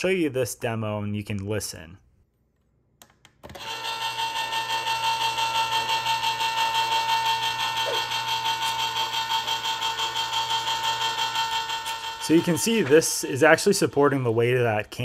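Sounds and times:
electric can opener motor whine: 0:03.5 - 0:13.3.

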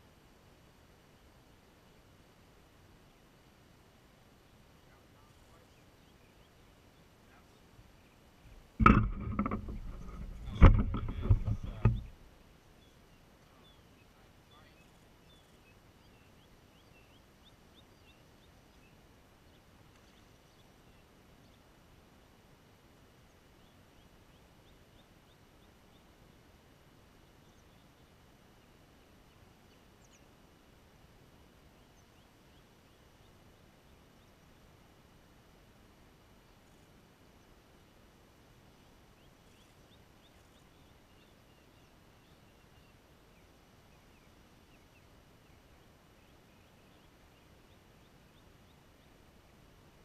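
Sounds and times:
knocking and rubbing of fishing rod: 0:08.6 - 0:12.1.

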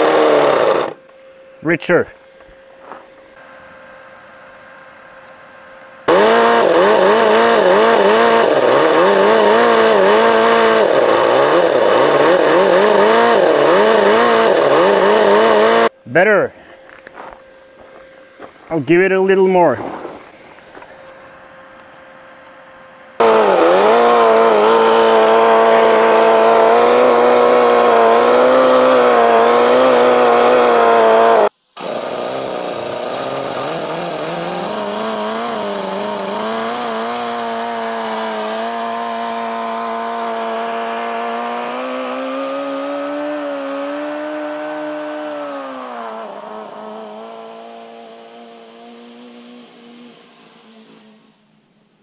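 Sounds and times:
model engine running fast: 0:00.0 - 0:01.0, 0:06.0 - 0:15.9, 0:23.2 - 0:51.3.

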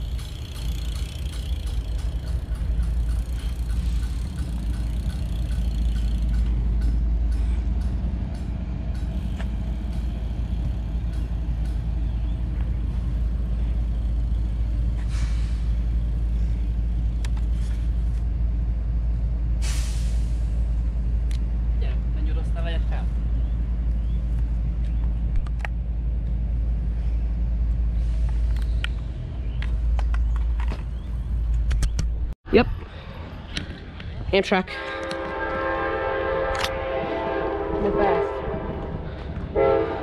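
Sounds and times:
train rumbling: 0:00.0 - 0:40.0
short hisses: 0:19.6 - 0:20.4.

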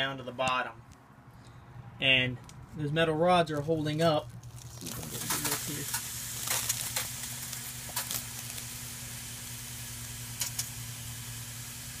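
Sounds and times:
misting nozzles hissing: 0:04.6 - 0:12.0.

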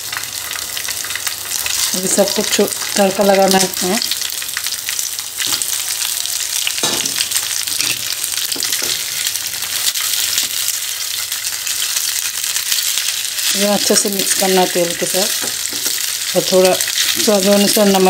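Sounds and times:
hot oil sizzling in a frying pan: 0:00.0 - 0:18.0.

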